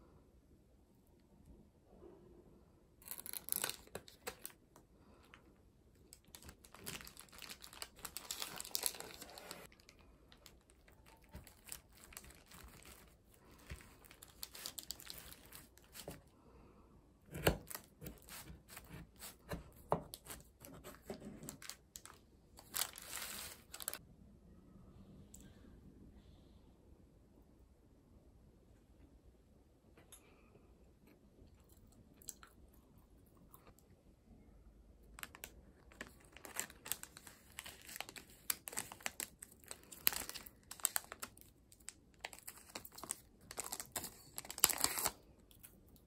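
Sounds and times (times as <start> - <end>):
parchment paper crinkling: 3.0 - 4.6, 6.0 - 16.3, 17.3 - 24.0, 35.2 - 45.7.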